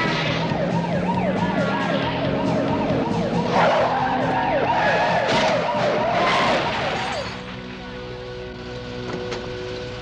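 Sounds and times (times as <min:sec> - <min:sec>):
police siren yelping: 0:00.0 - 0:07.4
tyres skidding: 0:00.0 - 0:10.0.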